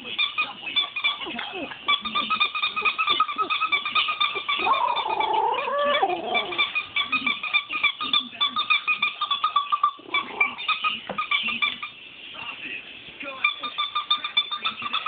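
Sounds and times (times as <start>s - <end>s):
toy squeaker squeaking: 0.2s - 12.0s, 13.4s - 15.0s
dog howling: 4.6s - 6.7s.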